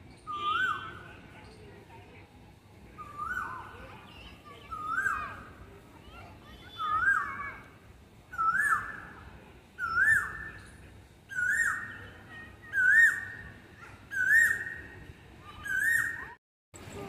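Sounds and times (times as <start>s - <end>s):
bird calling loudly: 0.3s - 1.0s, 3.0s - 3.7s, 4.6s - 5.4s, 6.7s - 7.5s, 8.3s - 9.1s, 9.8s - 10.7s, 11.3s - 14.9s, 15.5s - 16.4s.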